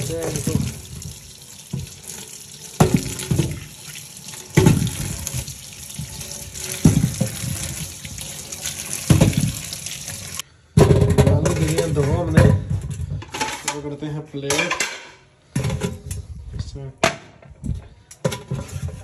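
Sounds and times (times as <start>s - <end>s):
tap running into sink: 0.0s - 10.4s
dull knocks in basin: 9.0s - 9.6s.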